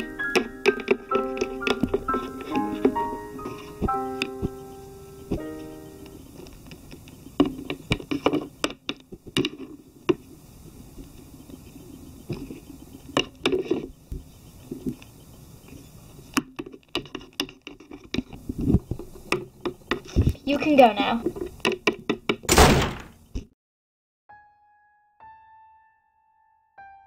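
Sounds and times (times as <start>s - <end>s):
plastic toys clicking in wooden box: 0.0s - 2.9s
scraping and rustling: 0.0s - 21.9s.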